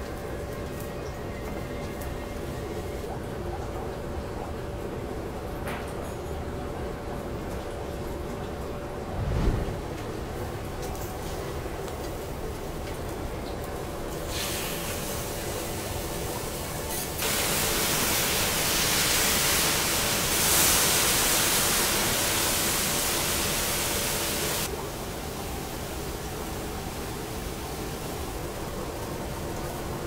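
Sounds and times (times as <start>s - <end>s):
water sizzling on hot griddle: 11.2s - 30.0s.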